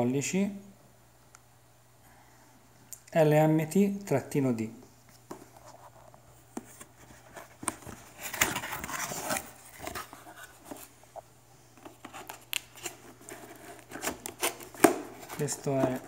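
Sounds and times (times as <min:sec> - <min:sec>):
cardboard sliding and rubbing: 0:06.6 - 0:10.9, 0:11.9 - 0:16.0.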